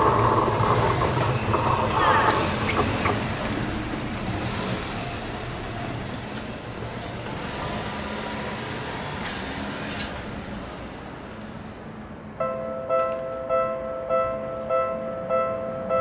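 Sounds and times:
cars driving over level crossing: 0.0s - 12.3s.

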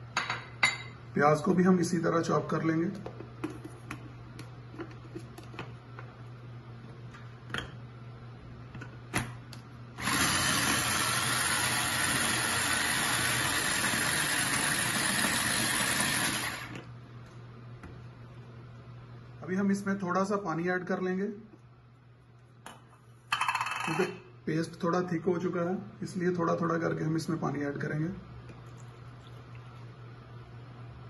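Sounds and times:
electric food chopper running: 10.0s - 16.9s.

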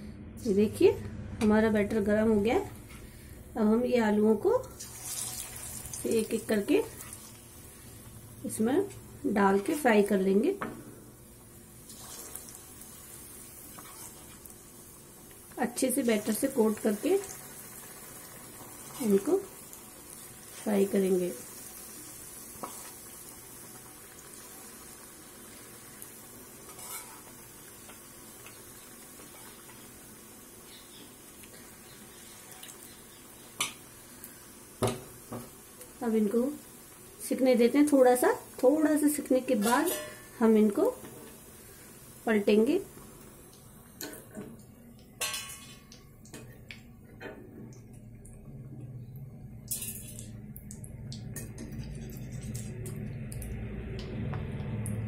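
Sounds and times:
potatoes deep-frying in oil: 1.8s - 46.9s, 47.7s - 55.0s
metal spatula clinking on pan: 39.6s - 40.3s.

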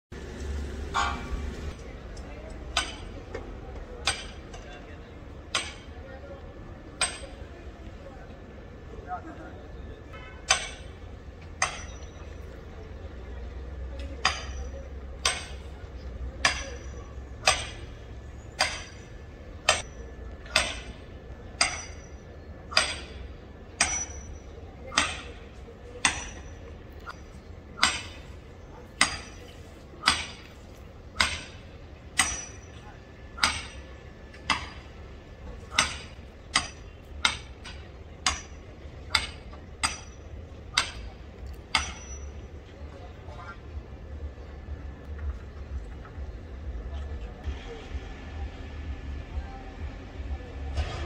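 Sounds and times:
hammer striking metal stake: 2.7s - 3.2s, 4.0s - 4.6s, 5.5s - 5.9s, 7.0s - 7.4s, 10.2s - 12.5s, 14.0s - 15.8s, 16.4s - 25.4s, 26.0s - 28.3s, 29.0s - 32.8s, 33.4s - 35.0s, 35.7s - 42.4s.

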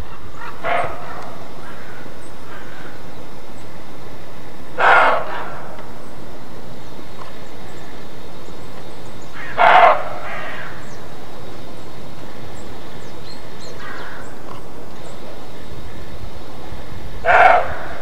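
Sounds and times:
deer barking: 0.4s - 1.4s, 4.7s - 5.8s, 9.4s - 10.6s, 17.2s - 18.0s.

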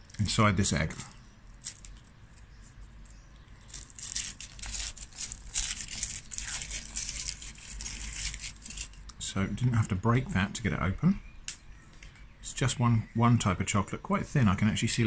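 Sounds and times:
foil wrapper crinkling: 0.0s - 2.4s, 3.5s - 9.1s.

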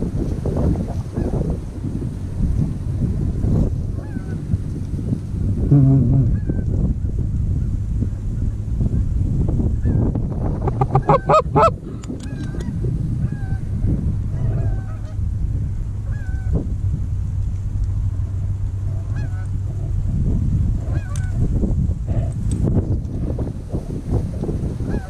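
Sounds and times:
wind rumble on microphone: 0.0s - 25.0s
goose honking and clucking: 10.6s - 13.6s, 19.1s - 19.9s, 20.8s - 21.4s.

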